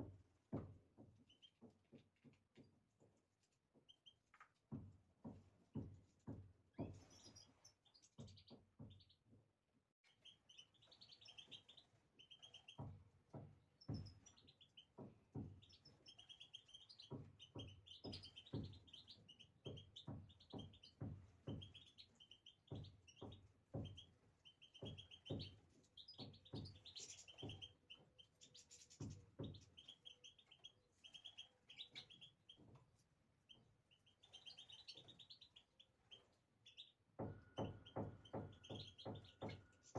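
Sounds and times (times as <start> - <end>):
goldfinches chirping: 33.5 - 37.0.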